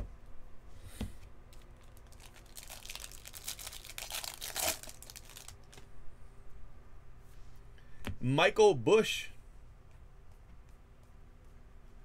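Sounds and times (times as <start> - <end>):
foil wrapper crinkling and tearing: 1.5 - 5.8.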